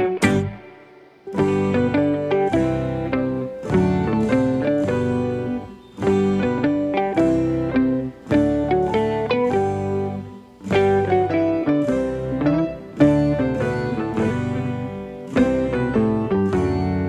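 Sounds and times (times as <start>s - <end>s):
low bass notes: 0.0s - 0.6s
plucked string melody: 0.0s - 17.0s.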